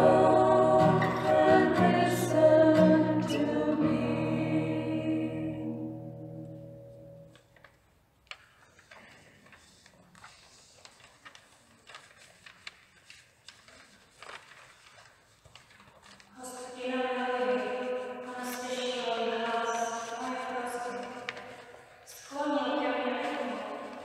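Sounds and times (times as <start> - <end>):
voices singing a slow chant: 0.0 - 6.1.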